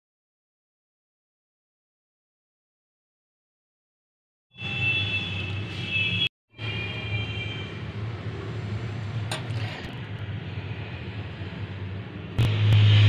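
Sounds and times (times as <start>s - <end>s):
low mechanical hum: 7.8s - 13.0s.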